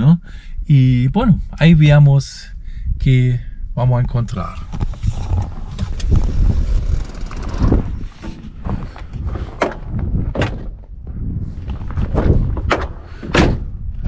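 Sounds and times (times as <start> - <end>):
steady low rumble: 0.0 - 14.0
steps on rocky ground: 8.0 - 10.8, 11.4 - 12.7
vehicle door handled: 9.5 - 10.9, 12.5 - 13.7.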